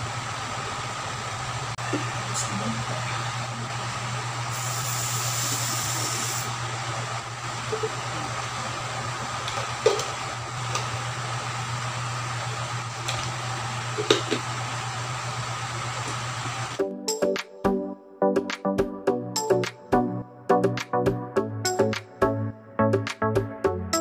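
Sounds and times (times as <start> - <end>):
fan hum: 0.0 - 16.8
short hiss: 4.5 - 6.5.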